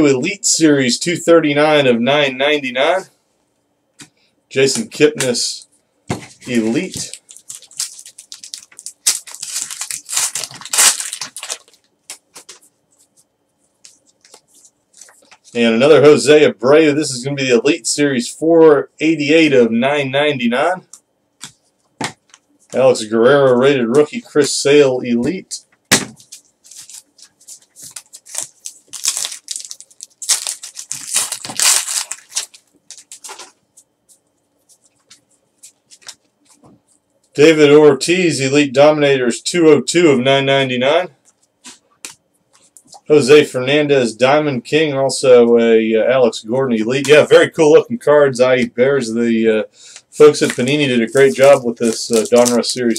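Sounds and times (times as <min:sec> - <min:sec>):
foil wrapper tearing and crumpling: 0:06.5 - 0:12.5, 0:26.2 - 0:33.5, 0:50.3 - 0:52.9.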